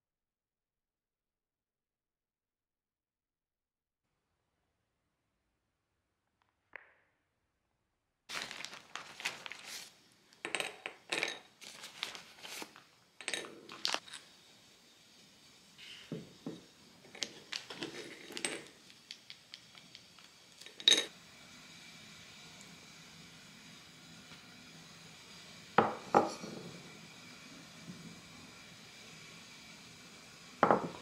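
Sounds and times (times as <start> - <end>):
plastic bag crinkling: 8.3 - 10.0, 11.6 - 14.2.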